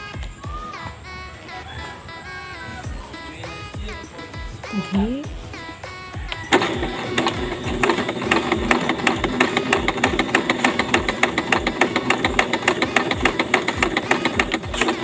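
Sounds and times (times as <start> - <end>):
sewing machine running: 6.5 - 15.0.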